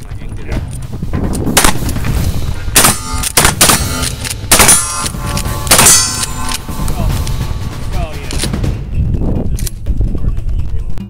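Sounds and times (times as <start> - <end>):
shotgun blasts: 1.5 - 2.0, 2.7 - 6.6.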